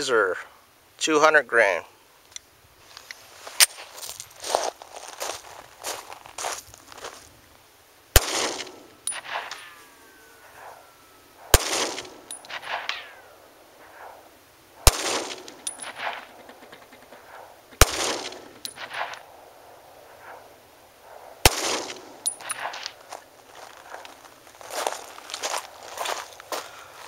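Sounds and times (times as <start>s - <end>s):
pistol shots with echo: 8.2s - 9.8s, 11.4s - 14.2s, 14.8s - 16.6s, 17.2s - 19.2s, 21.4s - 22.9s
light metallic clinks: 9.0s - 10.8s, 12.0s - 13.2s, 15.4s - 17.4s, 18.3s - 19.2s, 22.0s - 23.0s.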